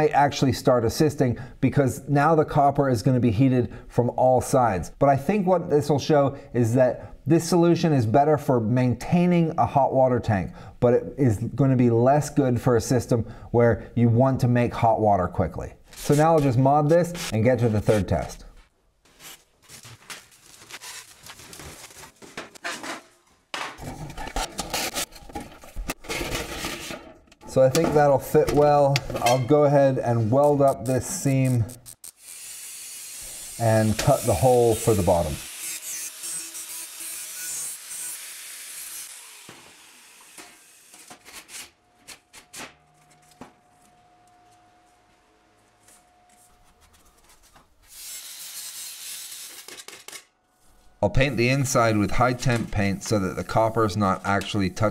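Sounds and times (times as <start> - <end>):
sheet metal and tools clinking: 22.3 - 29.8.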